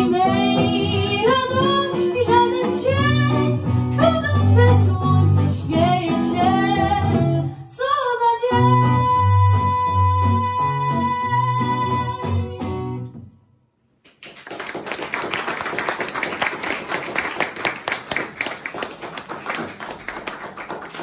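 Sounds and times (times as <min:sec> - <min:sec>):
acoustic song with piano and singer: 0:00.0 - 0:13.3
audience applauding: 0:14.1 - 0:21.0.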